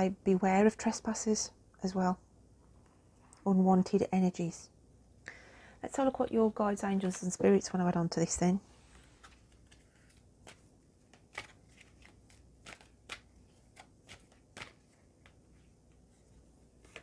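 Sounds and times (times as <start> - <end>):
cards shuffled by hand: 8.9 - 17.0.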